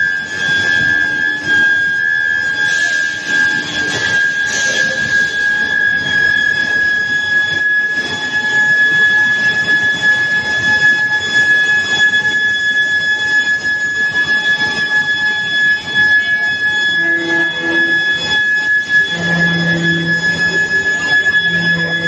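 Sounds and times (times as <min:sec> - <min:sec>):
machinery noise: 0:00.0 - 0:07.5, 0:13.8 - 0:22.0
induction heater high-pitched whine: 0:00.0 - 0:22.0.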